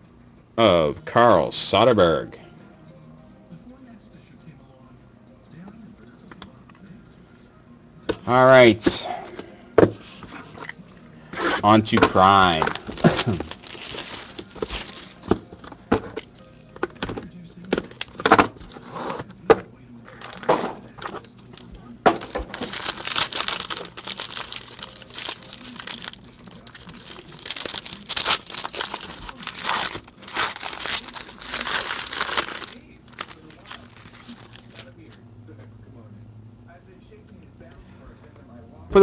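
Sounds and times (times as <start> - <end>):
foil wrappers crinkling and tearing: 11.4 - 19.2, 20.1 - 35.0.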